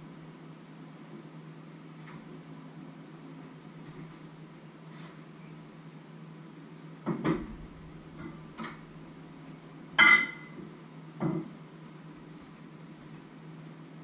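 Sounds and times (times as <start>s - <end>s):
pots and lid clanking: 10.0s - 10.6s.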